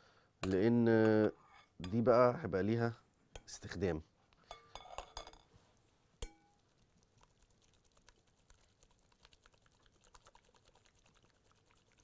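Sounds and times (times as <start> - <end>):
spoon clinking on strainer and bowl: 4.5 - 5.5, 6.2 - 6.6.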